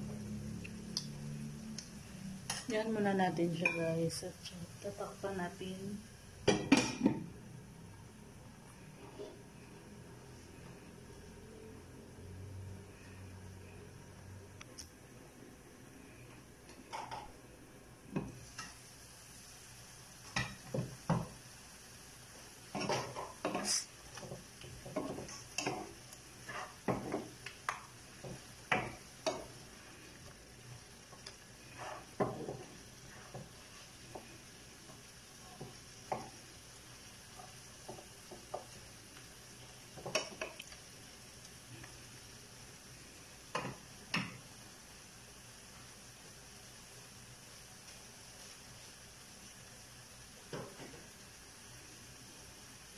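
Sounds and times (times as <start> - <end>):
faint sizzle: 0.0 - 52.9
wooden spoon knocking frying pan: 20.3 - 21.4, 26.5 - 29.6, 32.1 - 32.7, 39.9 - 40.6.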